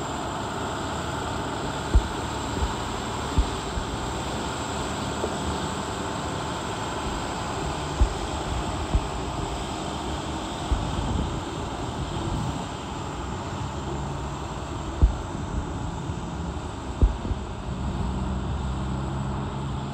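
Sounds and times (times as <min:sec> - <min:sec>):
diesel truck engine running: 0:00.0 - 0:19.9
short low thumps: 0:01.9 - 0:04.0, 0:15.0 - 0:15.3, 0:17.0 - 0:17.4.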